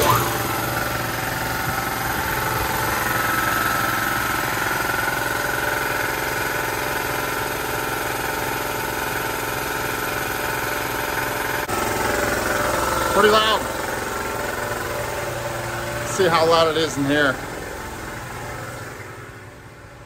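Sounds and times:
electric air compressor running: 0.0 - 20.0.

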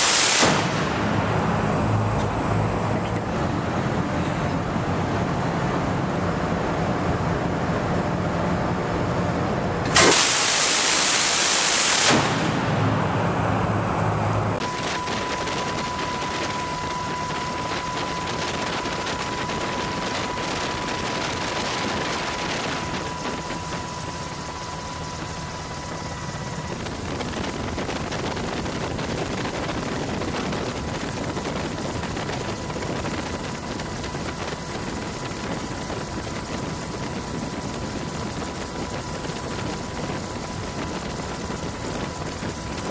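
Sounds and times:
rotary machine gun firing: 0.0 - 2.1, 9.9 - 13.2
low machinery hum: 0.0 - 42.9
steady rushing noise: 0.0 - 42.9
thin high tone: 13.4 - 26.6.

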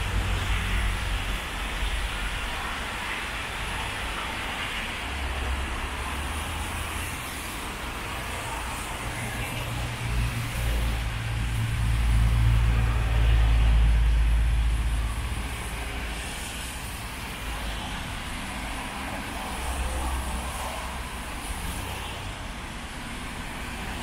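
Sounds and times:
rain and tyres hissing: 0.0 - 24.0.

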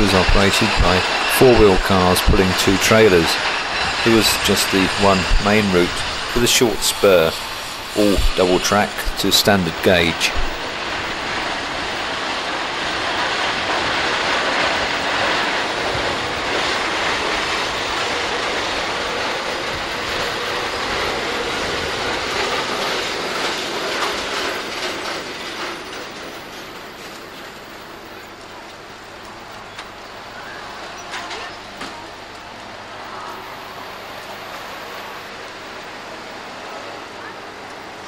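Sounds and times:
tram wheels clattering on rails: 0.0 - 38.0.

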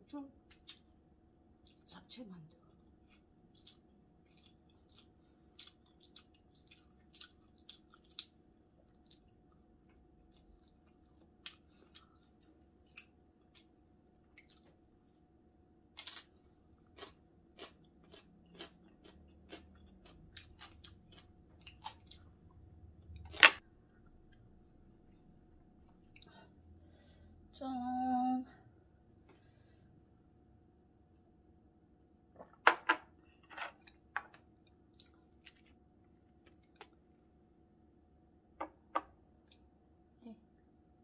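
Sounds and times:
chewing food: 1.6 - 1.9, 2.6 - 15.2, 16.0 - 23.4, 33.8 - 37.2.

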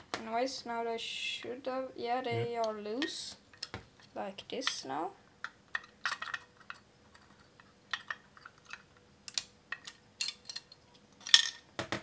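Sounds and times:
small metal parts clicking: 5.7 - 11.7.

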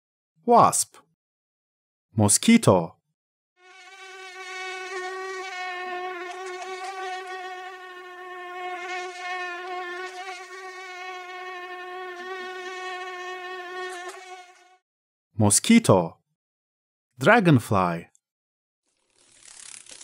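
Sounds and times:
mosquito whine: 3.6 - 14.8.

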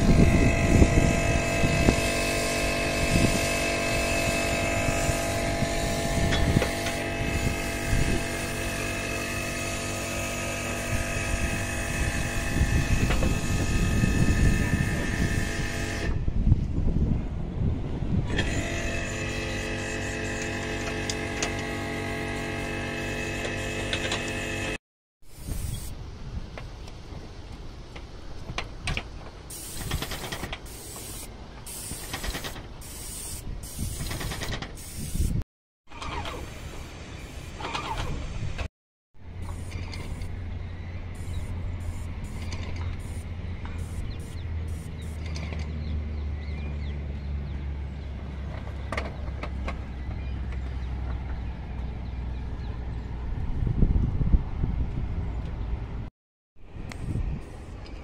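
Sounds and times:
wind buffeting microphone: 0.0 - 21.8, 48.2 - 58.0
spray gun hissing bursts: 25.3 - 25.9, 29.5 - 35.4, 41.2 - 45.2.

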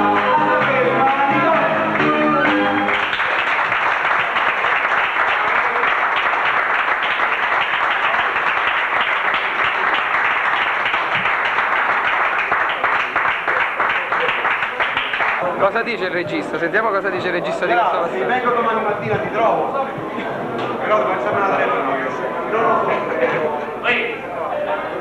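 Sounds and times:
singing with music: 0.0 - 3.1
group applauding: 0.1 - 16.8.

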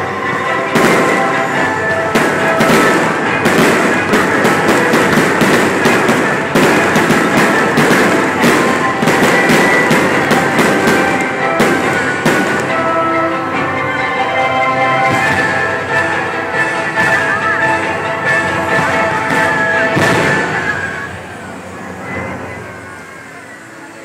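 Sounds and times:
fireworks banging and crackling: 0.0 - 22.6
loud music: 0.0 - 22.6
sparks fizzing: 0.8 - 12.8.

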